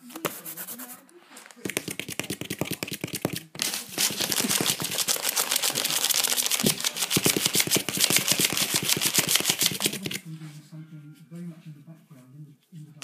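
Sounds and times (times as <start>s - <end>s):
puppy claws scrabbling on cardboard: 1.6s - 5.4s, 6.0s - 10.2s.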